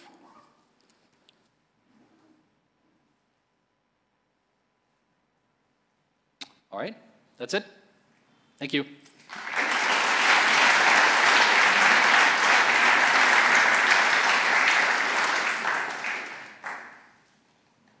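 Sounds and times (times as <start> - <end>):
audience applauding: 9.2 - 17.2.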